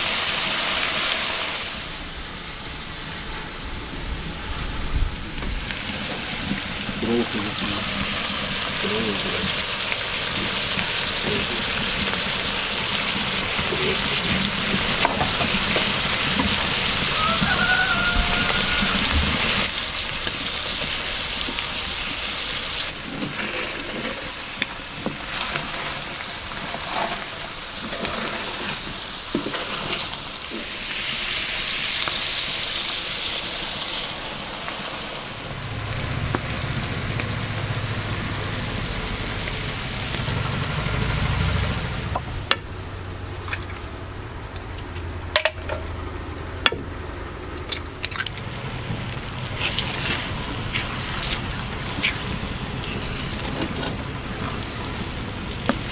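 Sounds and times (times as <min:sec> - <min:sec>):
food sizzling in a pan: 0:00.0 - 0:02.0, 0:05.6 - 0:42.1, 0:48.5 - 0:55.9
stirring: 0:48.1 - 0:55.1.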